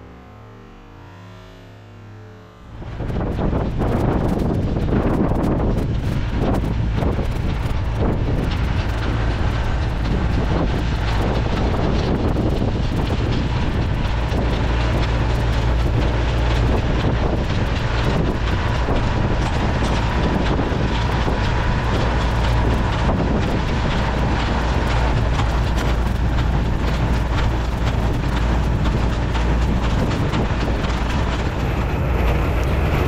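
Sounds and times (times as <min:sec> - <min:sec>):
tractor engine running: 0:02.6 - 0:33.0.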